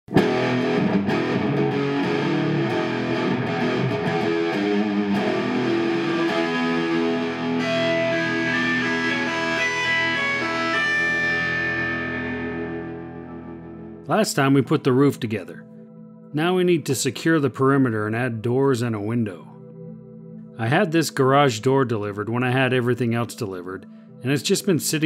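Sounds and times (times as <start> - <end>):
distorted electric guitar music: 0.1 - 14.2.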